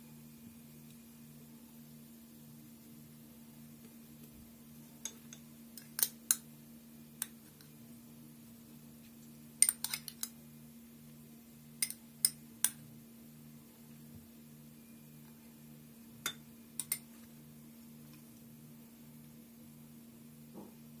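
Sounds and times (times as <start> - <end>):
faint low hum: 0.0 - 21.0
metal spoon clinking against dish: 9.6 - 10.4, 16.2 - 17.1.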